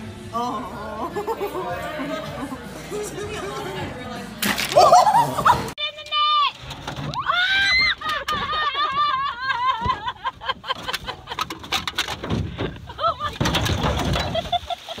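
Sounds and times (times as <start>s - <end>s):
woman laughing: 4.7s - 5.6s, 8.0s - 11.5s, 12.8s - 13.4s, 14.2s - 15.0s
knocks and clatter: 7.8s - 15.0s.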